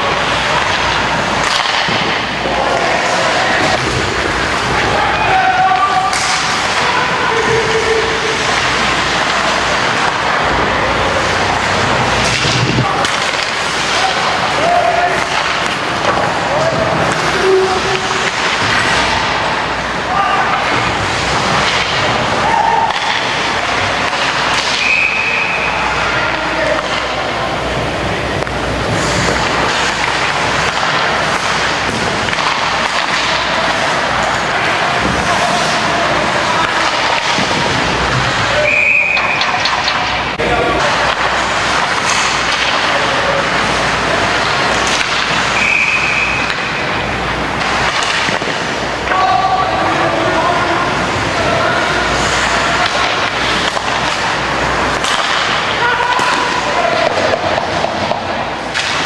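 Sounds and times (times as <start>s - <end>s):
people shouting: 0.0s - 26.9s, 47.8s - 59.0s
arena crowd noise: 0.0s - 59.0s
referee's whistle: 24.8s - 25.8s, 38.6s - 39.4s, 45.6s - 46.5s.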